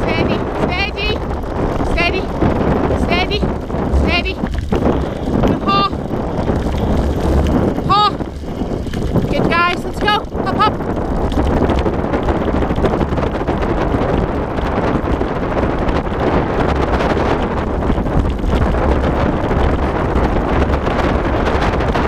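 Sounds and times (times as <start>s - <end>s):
sled rolling trail noise: 0.0s - 22.0s
wind buffeting microphone: 0.0s - 22.0s.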